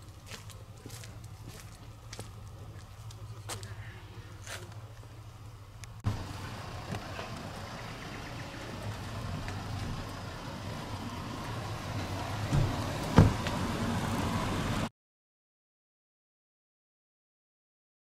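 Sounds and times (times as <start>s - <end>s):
engine humming: 0.0s - 14.9s
thumps: 12.4s - 13.6s.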